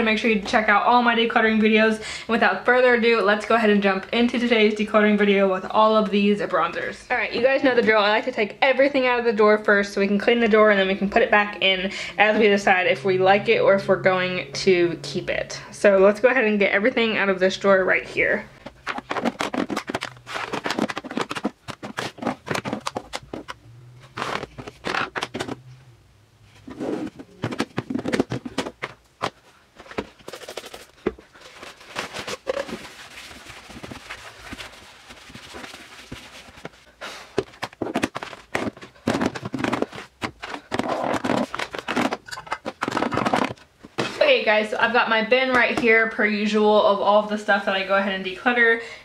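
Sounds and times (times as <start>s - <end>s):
makeup compacts clacking: 18.6s - 23.6s, 24.2s - 25.6s, 27.0s - 30.8s
paper towel rubbing drawer: 26.6s - 28.2s.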